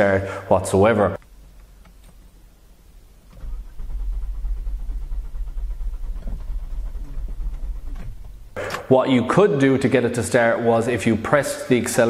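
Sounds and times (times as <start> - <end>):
car engine cranking: 3.2 - 8.9.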